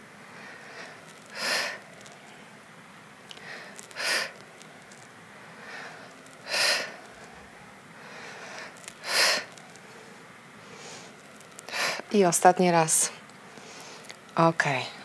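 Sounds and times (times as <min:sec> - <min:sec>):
woman breathing under exertion: 0:00.3 - 0:02.0, 0:03.4 - 0:04.4, 0:05.5 - 0:07.4, 0:08.0 - 0:12.1.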